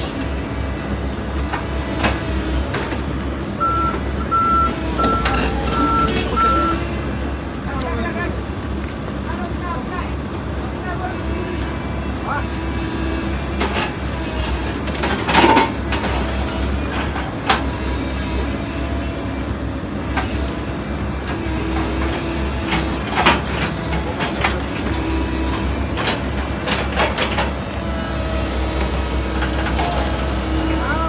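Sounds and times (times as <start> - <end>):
excavator diesel engine running: 0.0 - 31.0
metallic clanks and scrapes: 13.6 - 17.7.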